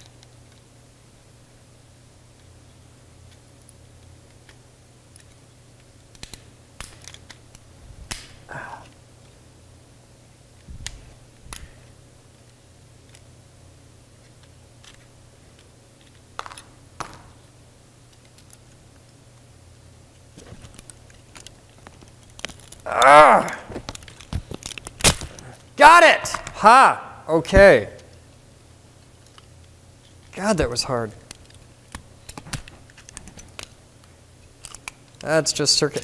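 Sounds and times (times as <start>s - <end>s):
faint steady hum: 0.0s - 36.0s
light clicks of small parts: 2.3s - 9.4s, 10.6s - 13.3s, 14.2s - 17.3s, 18.1s - 19.5s, 20.1s - 22.9s, 29.0s - 30.3s, 31.1s - 36.0s.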